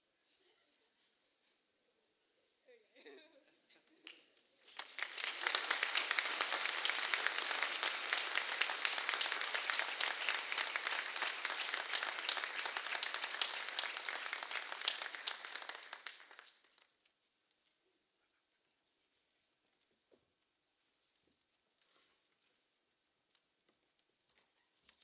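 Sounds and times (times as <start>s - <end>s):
audience applauding: 4.7s - 16.8s.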